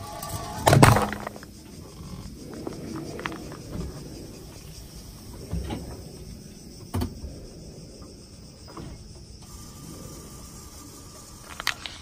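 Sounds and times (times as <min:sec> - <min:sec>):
can crushed under car tyre: 0:00.1 - 0:01.5.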